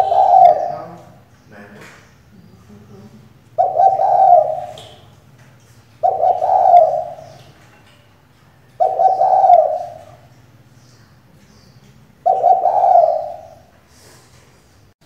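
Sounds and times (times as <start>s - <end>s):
dove cooing: 0.0s - 1.2s, 3.3s - 5.1s, 6.0s - 7.7s, 8.6s - 10.4s, 12.1s - 14.0s.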